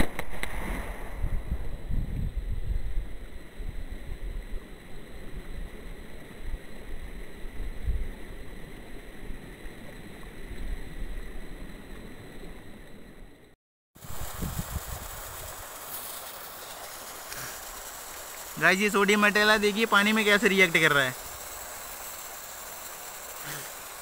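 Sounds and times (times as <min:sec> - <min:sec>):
wind buffeting microphone: 0:01.0 - 0:04.4, 0:14.0 - 0:15.6
river rushing: 0:15.5 - 0:24.0.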